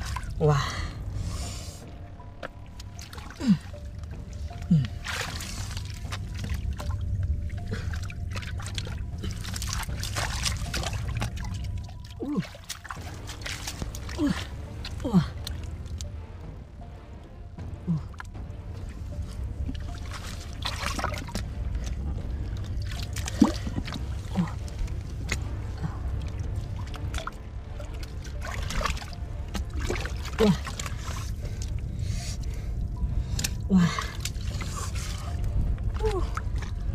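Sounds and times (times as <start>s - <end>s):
muddy water trickling and sloshing: 0.0s - 36.9s.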